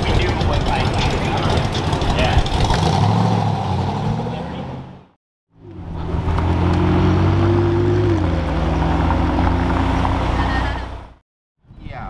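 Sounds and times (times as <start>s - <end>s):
car engine running: 0.0s - 3.1s.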